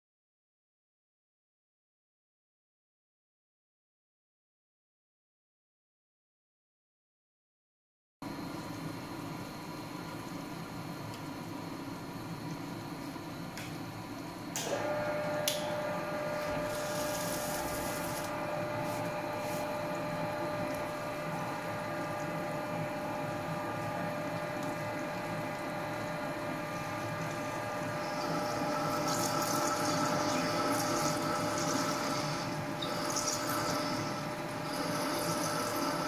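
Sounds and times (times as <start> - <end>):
lathe running with a steady whine: 8.3 - 36.0
drill cutting metal: 16.5 - 18.4, 28.2 - 36.0.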